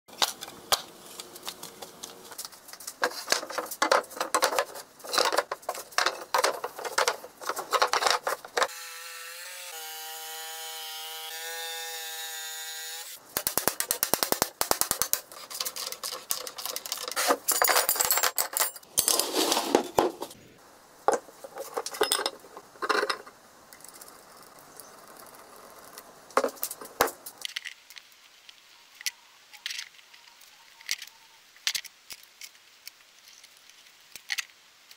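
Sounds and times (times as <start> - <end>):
wood and metal knocking: 3.0 - 8.7.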